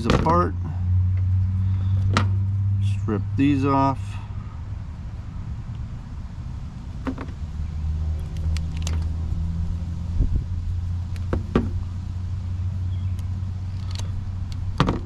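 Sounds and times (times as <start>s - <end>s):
engine humming: 0.0s - 15.0s
wire strippers clicking: 8.2s - 9.2s.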